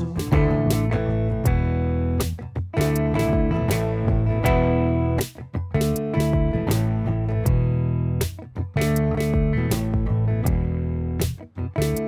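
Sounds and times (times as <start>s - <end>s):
bass: 0.0s - 12.0s
sustained guitar chords: 0.0s - 12.0s
drum hit: 0.2s - 4.8s.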